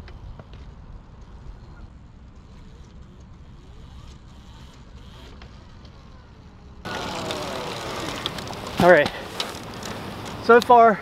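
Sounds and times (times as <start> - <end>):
electric motorcycle motor whining: 2.6 - 10.3.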